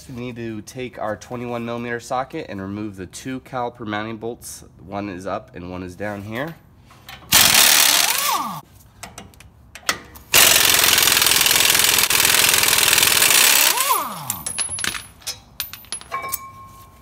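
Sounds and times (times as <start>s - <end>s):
pneumatic impact wrench hammering: 7.3s - 8.6s, 10.3s - 15.0s.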